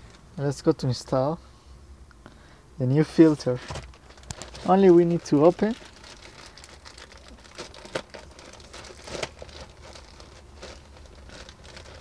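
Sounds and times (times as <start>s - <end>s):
plastic bag crinkling: 3.8s - 12.0s.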